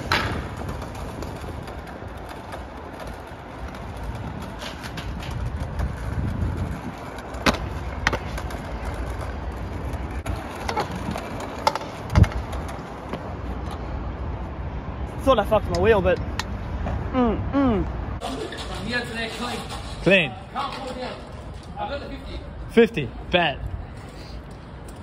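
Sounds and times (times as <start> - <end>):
scooter deck clacking on ground: 0.0 - 13.8
scooter wheels rolling over tiles: 0.0 - 13.9.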